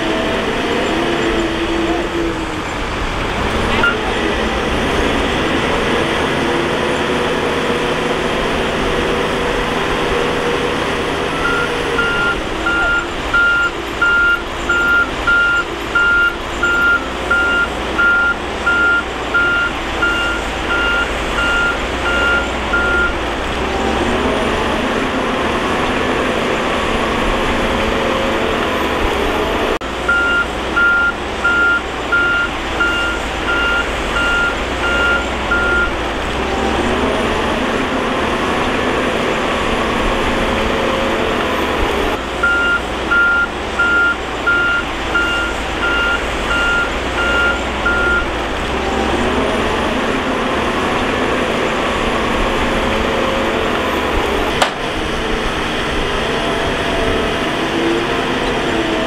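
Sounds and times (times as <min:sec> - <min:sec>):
bulldozer diesel engine running: 0:00.0 - 0:59.0
reversing alarm beeping: 0:03.8 - 0:04.1, 0:09.3 - 0:24.3, 0:30.0 - 0:37.1, 0:42.4 - 0:49.1.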